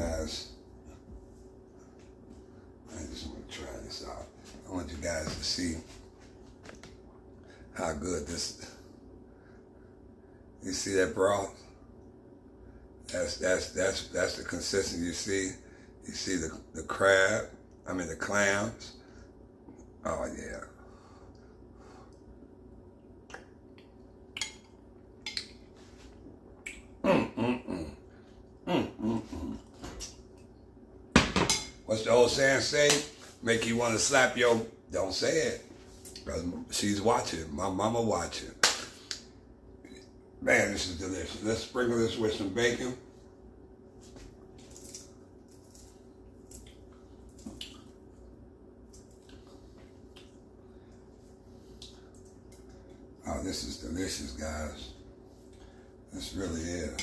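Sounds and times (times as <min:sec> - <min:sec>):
lip smacks and mouth clicks: 0:26.6 - 0:26.9, 0:44.7 - 0:48.0, 0:48.9 - 0:50.5, 0:51.7 - 0:53.0.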